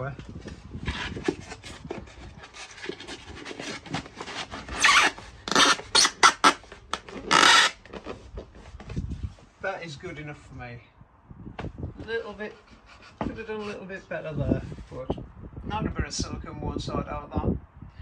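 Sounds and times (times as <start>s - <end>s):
insulation board scraping: 0.4s - 9.4s.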